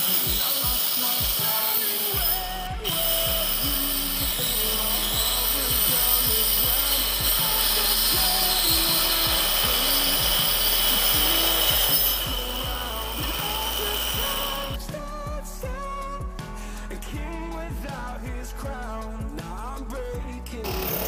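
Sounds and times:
circular saw whine: 0.0s - 14.8s
electronic music with beat: 0.0s - 21.0s.

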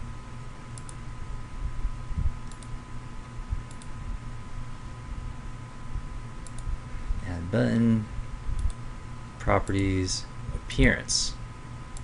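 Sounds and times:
steady background hum: 0.0s - 12.0s
computer mouse clicking: 0.8s - 1.0s, 2.4s - 2.8s, 3.7s - 4.0s, 6.4s - 6.7s, 8.6s - 8.8s.

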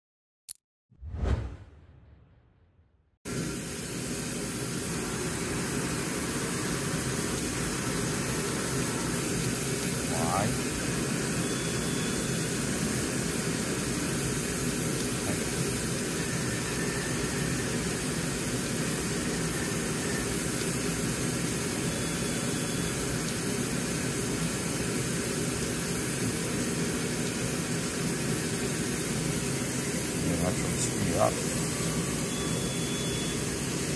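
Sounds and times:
grinding machine whirring: 28.0s - 33.4s.

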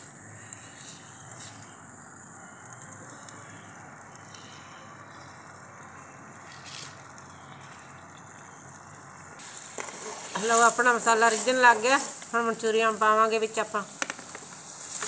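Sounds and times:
sauce sizzling: 7.1s - 15.0s.

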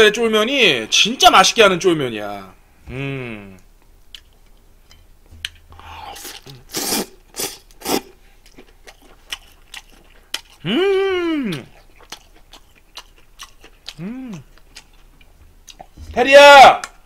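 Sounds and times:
chewing and slurping noodles: 5.5s - 10.6s, 11.6s - 16.0s.

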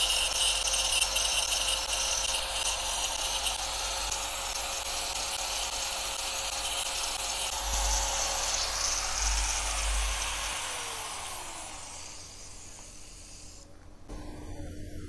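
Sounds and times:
angle grinder whining: 0.0s - 15.0s.

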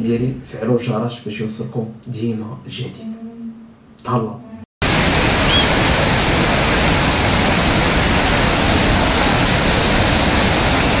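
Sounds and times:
floodwater rushing: 4.8s - 11.0s.

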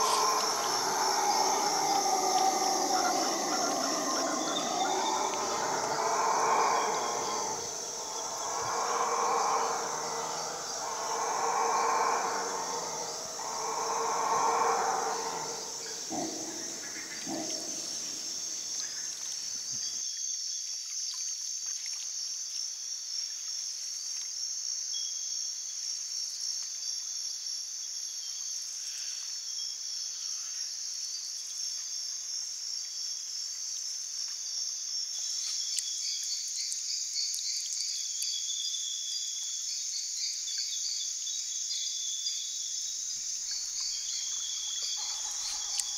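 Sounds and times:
howler monkeys roaring: 0.0s - 19.0s, 44.8s - 45.9s
insects buzzing and trilling: 0.0s - 20.3s, 22.7s - 45.9s.

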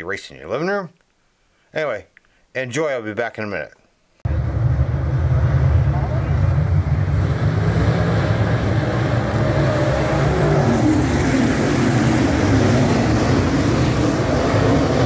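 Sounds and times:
race car engines roaring: 4.3s - 15.0s.

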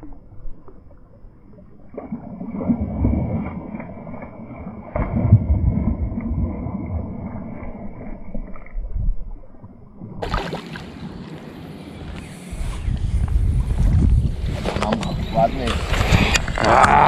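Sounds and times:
fish splashing in water: 10.2s - 11.4s.

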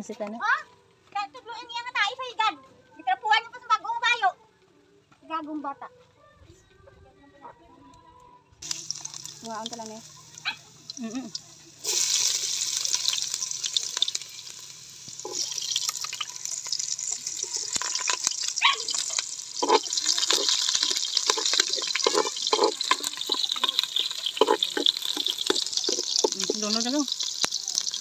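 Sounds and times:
garlic and onion sizzling in oil: 8.6s - 28.0s
oil crackles: 8.6s - 28.0s.

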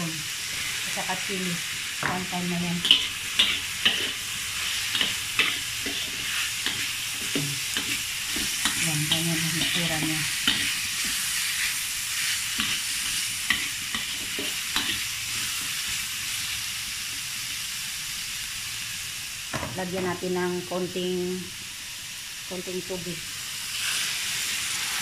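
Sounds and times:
vegetables sizzling in a wok: 0.0s - 25.0s
metal spatula scraping a pan: 2.4s - 11.6s, 12.2s - 15.6s.

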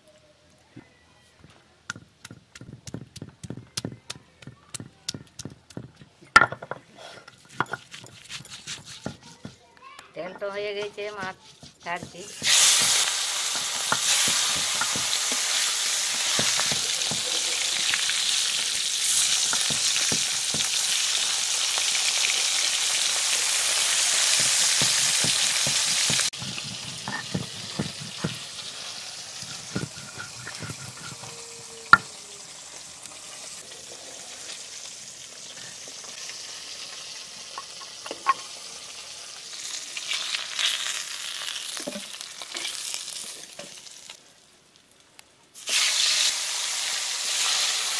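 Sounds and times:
fish sizzling in oil: 11.2s - 44.5s, 45.5s - 47.9s
grinding stone scraping: 29.4s - 32.1s.

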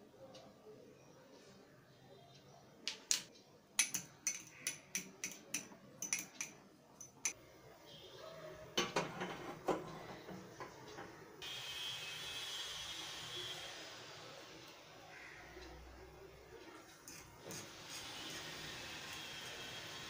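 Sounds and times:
cookware clattering: 3.8s - 7.4s, 8.8s - 11.3s
spoon clinking in ceramic cup: 3.8s - 7.4s.

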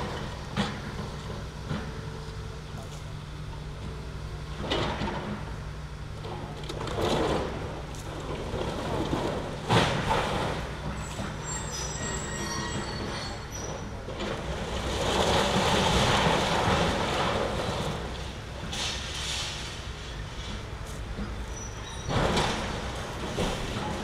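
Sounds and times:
excavator engine running: 0.0s - 24.0s
high metallic squealing: 11.0s - 13.9s.

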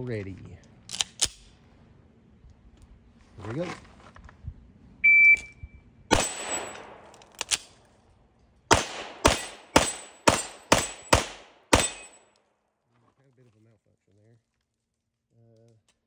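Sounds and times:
shot timer beep: 5.0s - 5.8s
steel targets ringing: 6.1s - 7.1s, 8.7s - 12.2s
pistol shots: 6.1s - 7.6s, 8.7s - 12.2s.

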